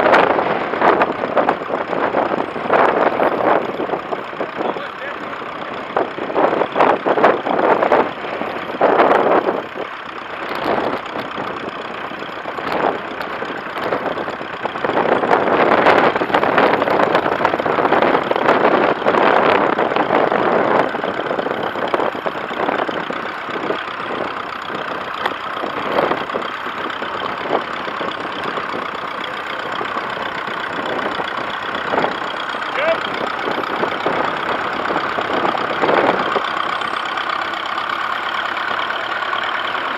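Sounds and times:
tractor engine running: 0.0s - 39.9s
wind buffeting microphone: 0.0s - 39.9s.

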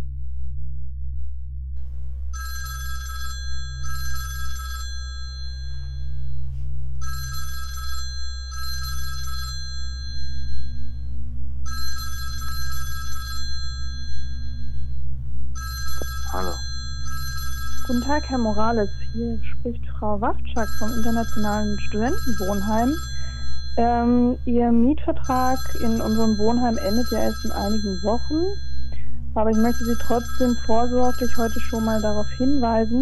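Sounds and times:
steady low hum: 0.0s - 33.0s
phone ringing with bell ringtone: 2.4s - 6.4s, 7.0s - 11.0s, 11.7s - 14.9s, 15.6s - 19.7s, 20.6s - 24.5s, 25.2s - 33.0s.

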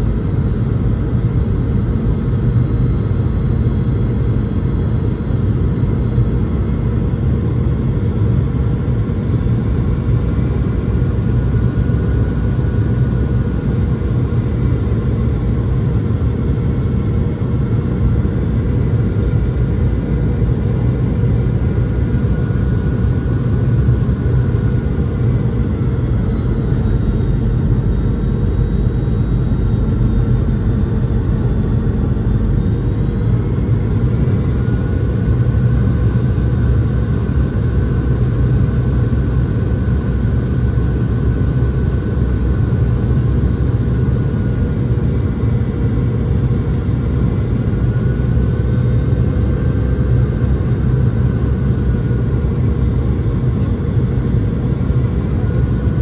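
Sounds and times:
high engine whine: 0.0s - 56.0s
aircraft cabin rumble: 54.8s - 56.0s.

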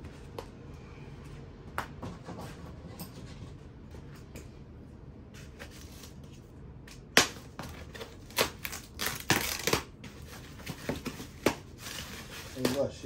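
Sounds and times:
packaging crackling and rustling: 7.5s - 13.0s.

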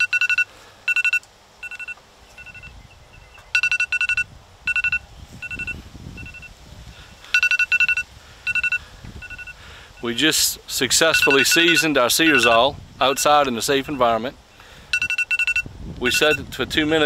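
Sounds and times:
electronic timer alarm beeping: 0.0s - 6.6s, 7.3s - 9.6s, 11.1s - 14.1s, 14.9s - 16.4s.

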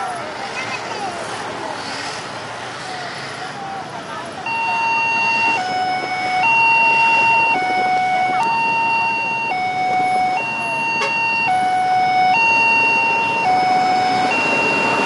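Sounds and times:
two-tone siren: 4.4s - 15.0s.

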